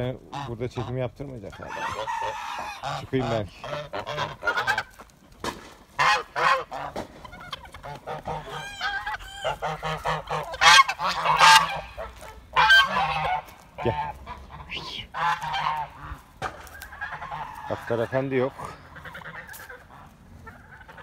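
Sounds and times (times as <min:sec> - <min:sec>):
geese honking: 0:00.0 - 0:21.0.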